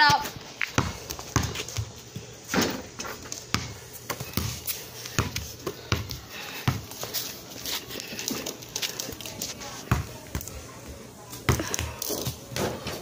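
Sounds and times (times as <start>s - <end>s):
basketball bouncing on concrete: 0.0s - 2.3s, 3.2s - 7.1s, 9.9s - 10.6s, 11.5s - 12.9s.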